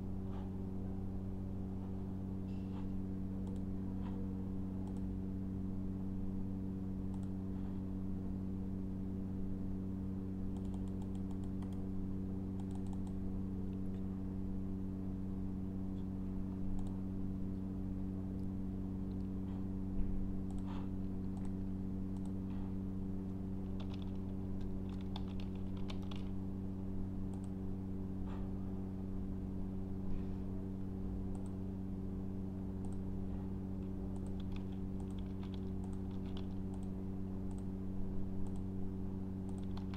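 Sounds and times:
steady low hum: 0:00.0 - 0:39.9
mouse clicks: 0:03.4 - 0:04.2, 0:04.8 - 0:05.1, 0:07.1 - 0:07.4, 0:10.5 - 0:11.8, 0:12.6 - 0:13.2, 0:16.7 - 0:17.0, 0:34.1 - 0:37.7
keyboard typing: 0:23.6 - 0:26.3, 0:34.1 - 0:36.9, 0:39.4 - 0:39.9.

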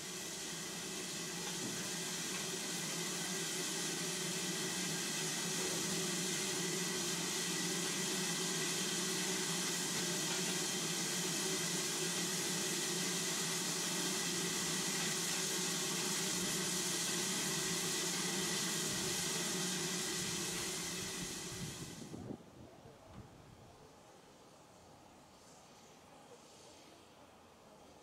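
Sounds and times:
steam hissing: 0:00.0 - 0:22.2.

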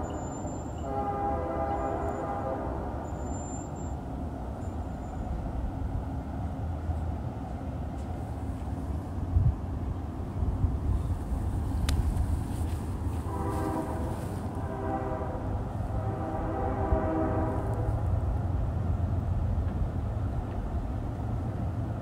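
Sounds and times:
distant locomotive air horn: 0:00.0 - 0:04.0, 0:12.9 - 0:18.3
steady low rumble: 0:08.1 - 0:22.0.

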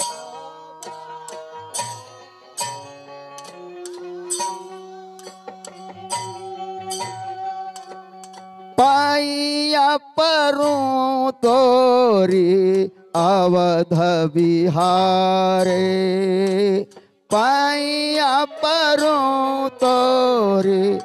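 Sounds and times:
man singing long wavering notes: 0:08.8 - 0:21.0.

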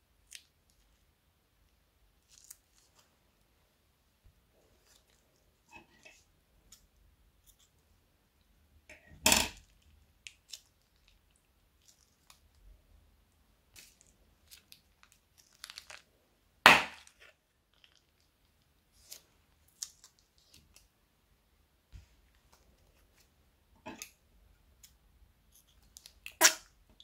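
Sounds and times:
faint plastic crinkles: 0:00.2 - 0:03.4, 0:04.5 - 0:07.9, 0:09.6 - 0:12.8, 0:13.7 - 0:16.2, 0:17.0 - 0:21.0, 0:22.0 - 0:27.0.

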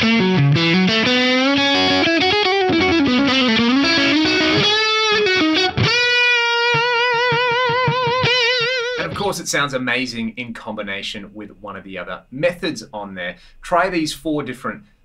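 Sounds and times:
electric guitar lead: 0:00.0 - 0:09.3.

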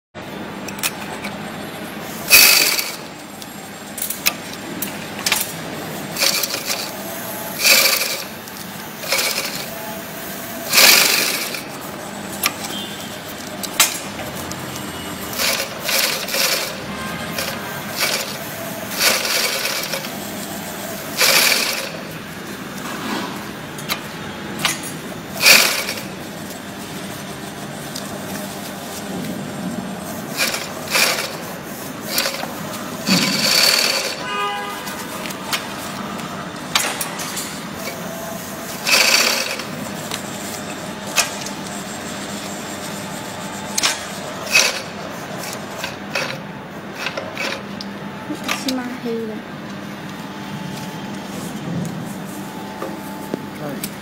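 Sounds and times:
industrial sewing machine running: 0:00.7 - 0:49.3.

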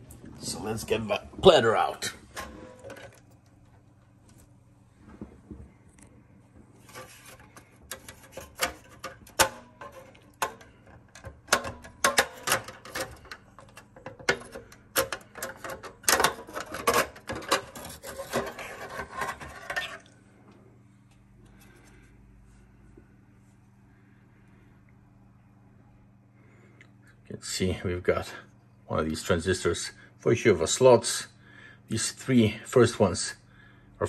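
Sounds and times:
metal scraping: 0:06.8 - 0:10.6, 0:14.3 - 0:20.1
metal board clicks and knocks: 0:07.9 - 0:18.4.

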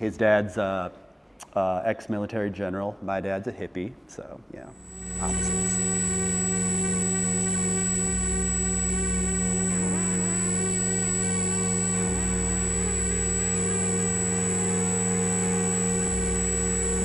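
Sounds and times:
electronic noise music drone: 0:04.8 - 0:17.0
warbling electronic sounds: 0:04.8 - 0:17.0.

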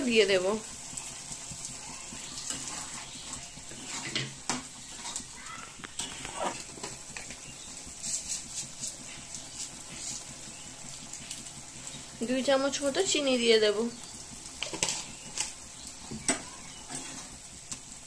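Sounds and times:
curry sizzling and bubbling: 0:00.0 - 0:18.0
metal spatula scraping pan: 0:02.4 - 0:05.2.

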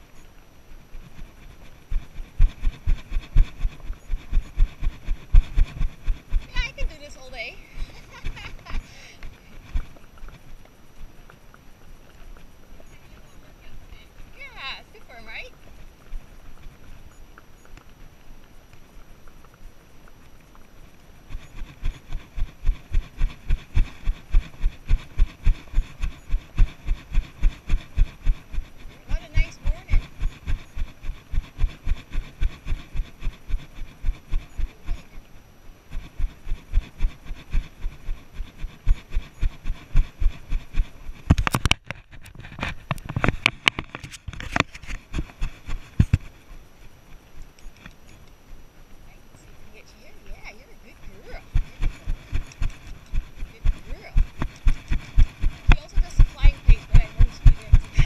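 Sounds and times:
scraping and clicking on camera: 0:01.0 - 0:11.4, 0:20.2 - 0:35.2, 0:35.9 - 0:46.6, 0:51.0 - 0:58.0
horse hoofbeats on dirt: 0:01.0 - 0:35.3, 0:35.9 - 0:46.5, 0:49.8 - 0:58.0.

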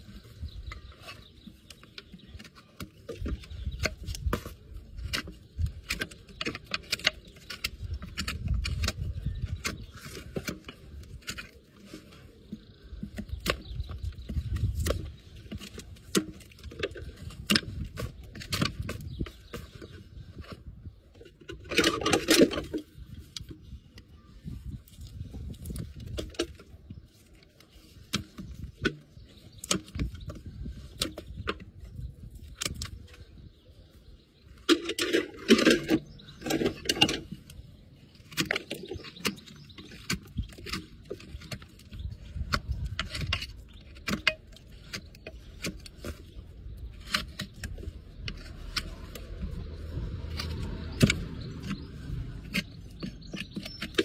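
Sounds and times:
hoof knife scraping hoof: 0:00.0 - 0:54.0.

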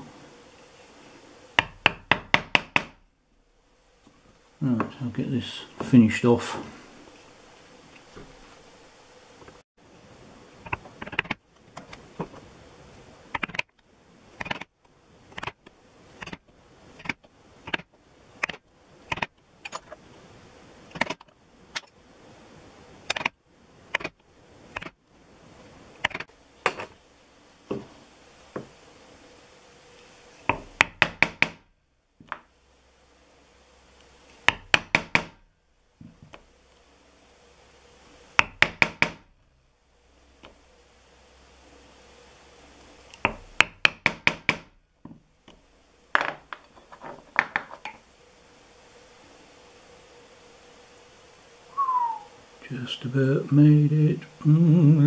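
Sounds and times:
mallet striking chisel through leather: 0:38.4 - 0:39.2.

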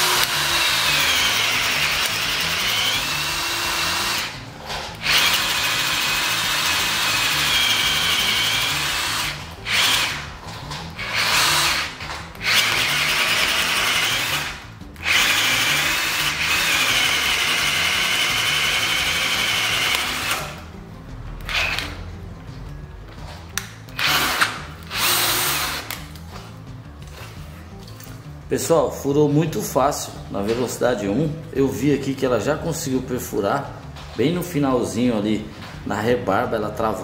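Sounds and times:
cordless drill boring into wood: 0:00.0 - 0:04.4, 0:05.0 - 0:10.3, 0:11.0 - 0:20.6, 0:21.5 - 0:21.9, 0:24.0 - 0:25.9.

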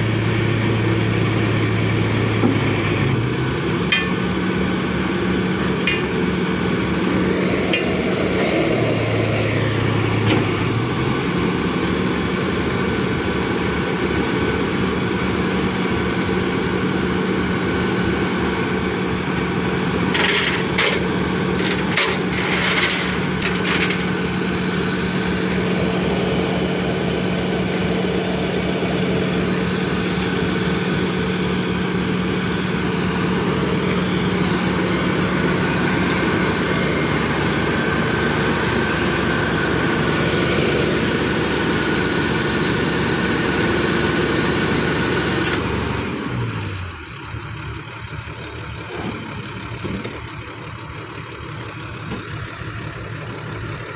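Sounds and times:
diesel engine idling: 0:00.0 - 0:53.9.

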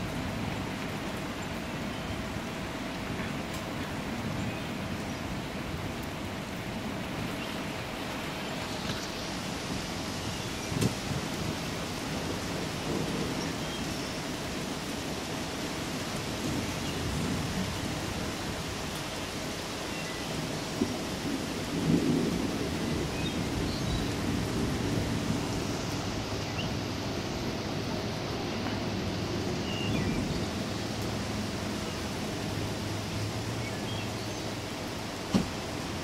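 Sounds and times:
steady rain falling: 0:00.0 - 0:36.0
thunder rumbling: 0:20.8 - 0:26.9.

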